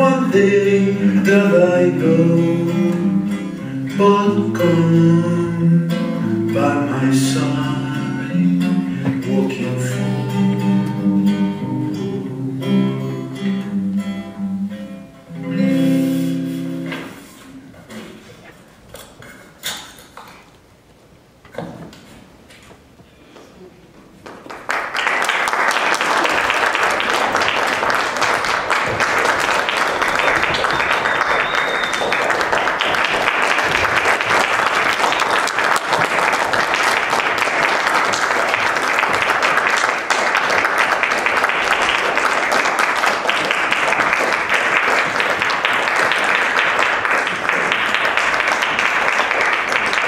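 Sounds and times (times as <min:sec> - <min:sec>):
audience applauding: 0:24.2 - 0:50.0.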